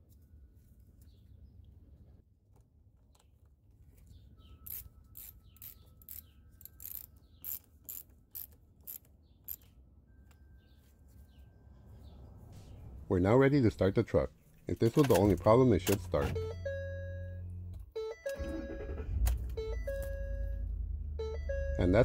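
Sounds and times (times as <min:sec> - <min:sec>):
ratchet wrench clicking: 0:04.6 - 0:09.7.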